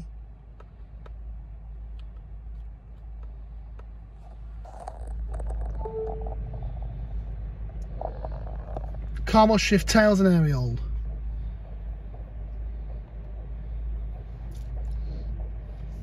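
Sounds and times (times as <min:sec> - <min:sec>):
low hum inside car cabin: 0:00.0 - 0:16.0
short electronic beep: 0:05.8 - 0:06.4.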